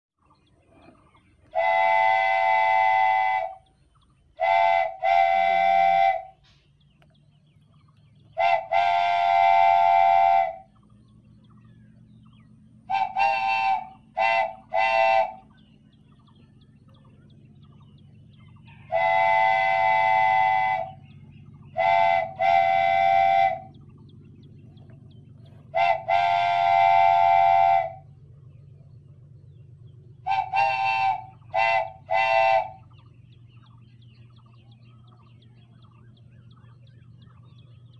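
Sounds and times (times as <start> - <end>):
faint low rumble: 0.2 - 37.9
train horn blasts: 1.5 - 3.6, 4.4 - 6.6, 8.4 - 10.7, 12.9 - 15.5, 18.9 - 23.8, 25.7 - 28.2, 30.2 - 33.0.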